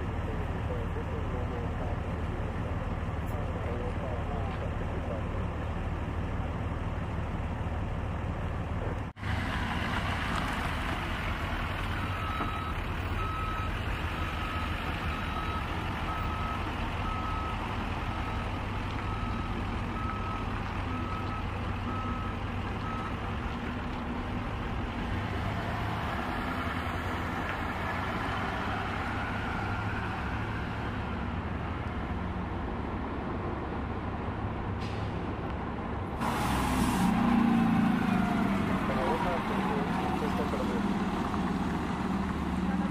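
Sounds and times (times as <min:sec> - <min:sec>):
fire trucks idling: 0:00.0 - 0:25.5, 0:26.1 - 0:42.9
reversing alarm beeping: 0:12.0 - 0:23.2.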